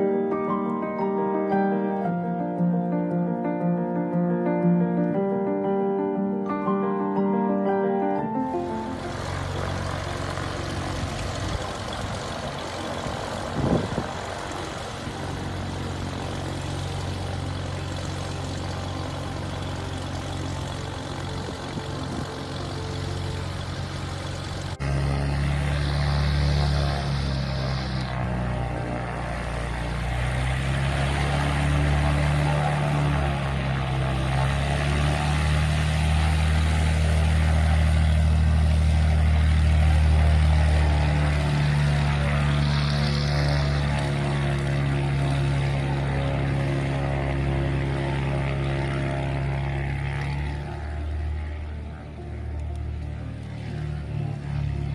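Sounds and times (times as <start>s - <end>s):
airplane piston engine and propeller: 6.6s - 54.9s.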